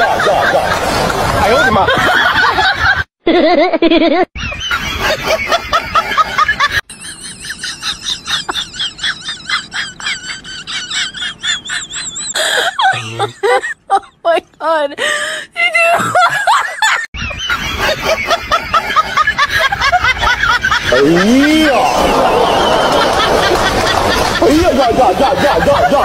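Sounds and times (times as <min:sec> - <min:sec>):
high-pitched laughter-like squeals: 0:17.0 - 0:18.2.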